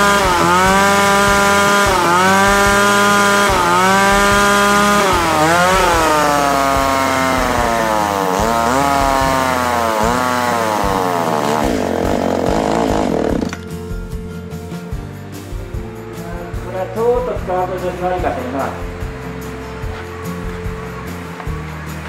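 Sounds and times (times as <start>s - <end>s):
chainsaw running at high revs: 0.0s - 13.6s.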